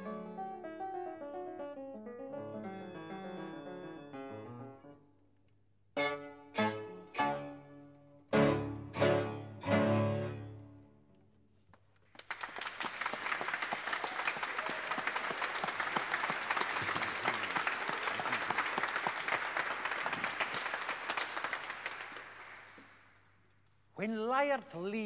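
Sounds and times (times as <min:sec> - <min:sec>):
violin cello and keyboard chord: 0:06.0 - 0:10.8
audience applauding: 0:12.0 - 0:23.2.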